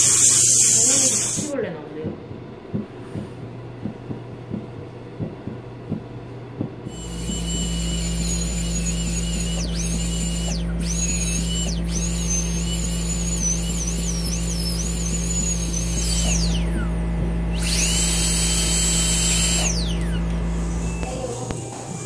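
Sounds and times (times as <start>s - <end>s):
dental drill whining: 0.0s - 1.5s, 6.8s - 22.0s
steady low hum: 0.0s - 21.7s.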